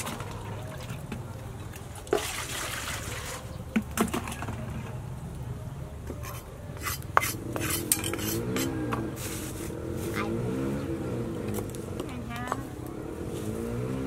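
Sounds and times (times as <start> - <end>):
metal bowls clattering: 6.2 - 9.1.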